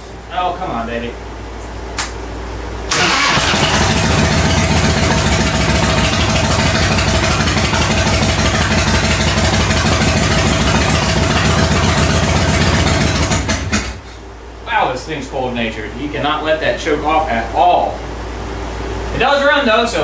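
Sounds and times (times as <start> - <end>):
motorcycle engine running: 2.9 - 14.1.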